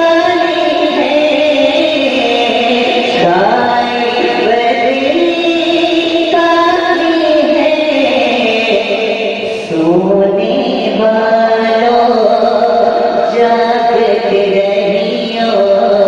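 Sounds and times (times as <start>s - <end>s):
man singing into a microphone: 0.0s - 8.8s.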